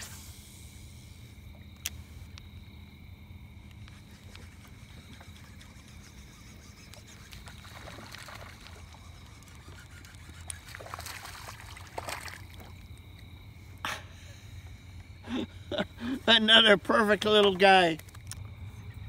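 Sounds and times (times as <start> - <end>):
water splashing: 4.1 - 13.2.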